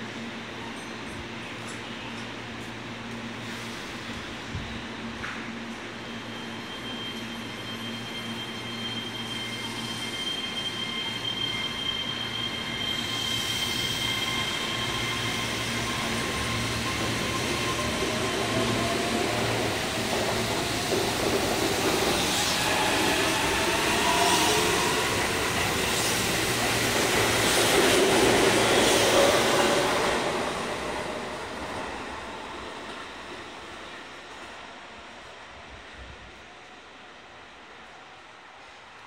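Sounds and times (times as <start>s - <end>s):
high wheel squeals: 5.9s - 31.5s.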